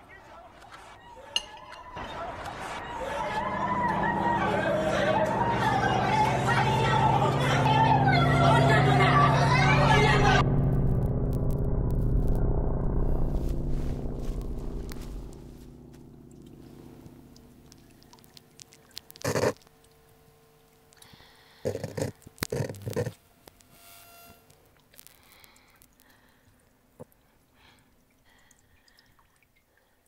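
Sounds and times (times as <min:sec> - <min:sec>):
low sustained drone: 0:01.4 - 0:18.4.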